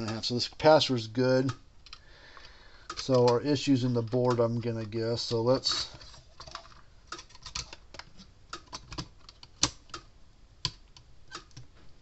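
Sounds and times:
pliers clicking on plastic case: 2.9s - 5.0s.

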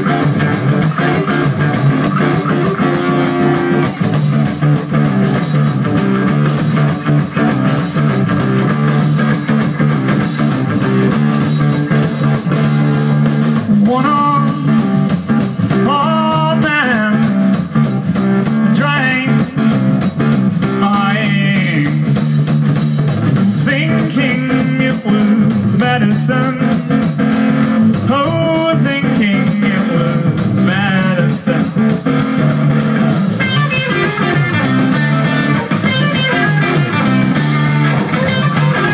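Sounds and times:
live rock band playing: 0.0s - 38.9s
person singing: 12.5s - 17.7s, 18.4s - 20.0s, 20.6s - 22.3s, 23.6s - 32.5s, 33.5s - 38.9s.

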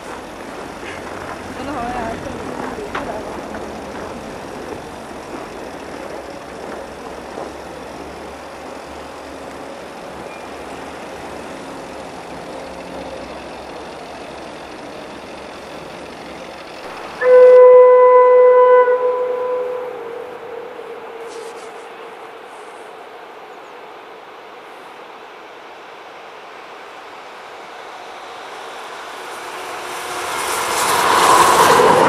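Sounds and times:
steady outdoor noise: 0.0s - 32.0s
electric train horn blast: 16.8s - 23.4s.

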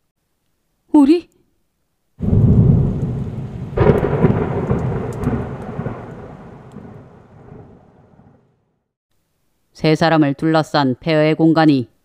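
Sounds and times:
thunder crack: 2.2s - 8.7s
thunder rumble: 2.2s - 8.7s.

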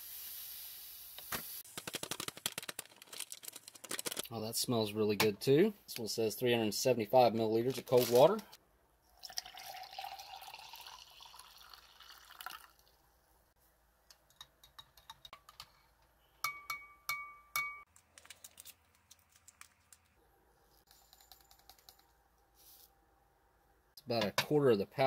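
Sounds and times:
water poured into glass: 9.2s - 12.9s
spoon clinking against glass: 16.4s - 17.8s.

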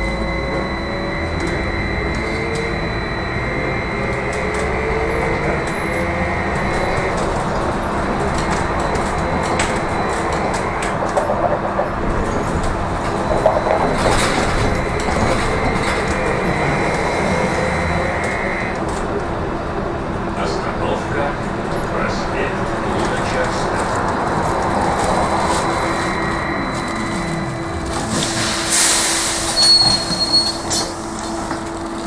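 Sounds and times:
high electric whine: 0.0s - 11.4s, 12.5s - 18.9s, 24.2s - 31.3s.

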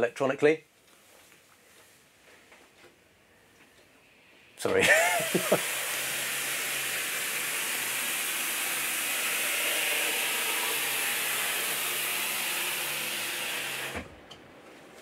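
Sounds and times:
sunroof sliding open whir: 6.2s - 15.0s.

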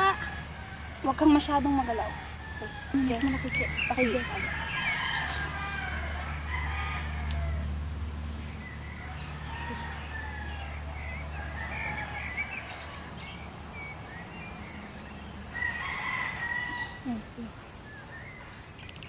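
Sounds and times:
rooster crowing: 0.0s - 7.8s, 8.8s - 13.4s, 15.5s - 17.2s
birds chirping: 0.0s - 19.0s.

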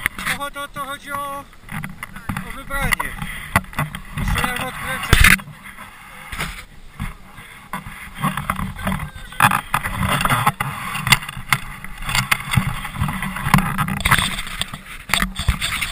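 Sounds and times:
camera rustling against jacket: 0.0s - 15.9s
small knocks and clicks: 6.3s - 15.9s.

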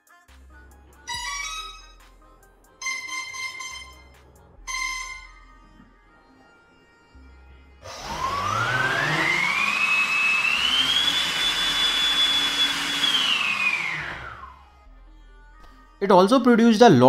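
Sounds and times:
electric motor whine: 7.8s - 14.8s.

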